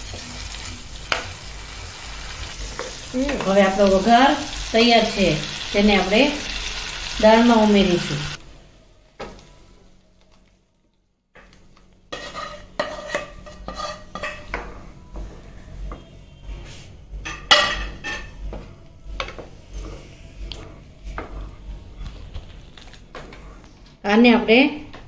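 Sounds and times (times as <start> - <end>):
spatula scraping pan: 12.1 - 15.4.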